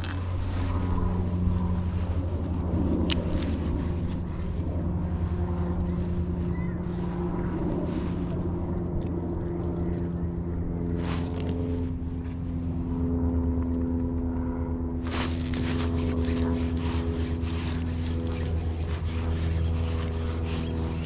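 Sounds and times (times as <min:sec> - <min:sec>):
motor droning: 0:00.0 - 0:21.0
fishing reel clicking and whirring: 0:15.1 - 0:21.0.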